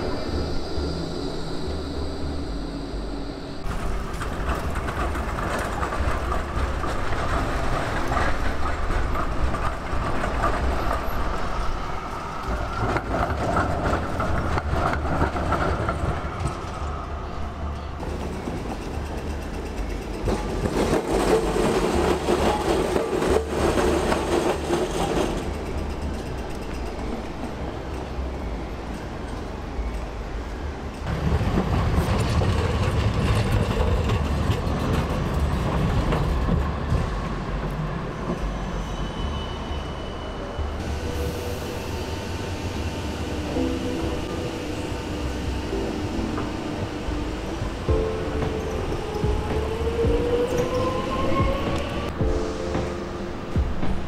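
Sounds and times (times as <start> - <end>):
electric trams running on tracks: 0.0 - 54.0.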